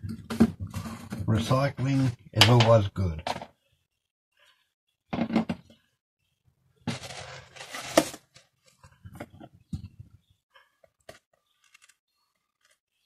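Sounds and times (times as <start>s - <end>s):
scraping rustling noise: 6.9s - 9.1s
plastic tray and rag rustling: 6.9s - 10.1s.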